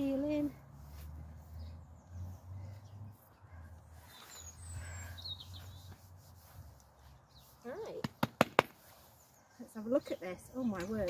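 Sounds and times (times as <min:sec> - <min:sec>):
bird chirps: 0:01.4 - 0:07.6.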